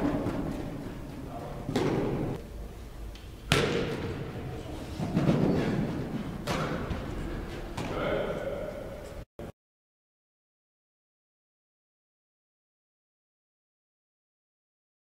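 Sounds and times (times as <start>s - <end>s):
dull thuds echoing: 1.6s - 2.4s.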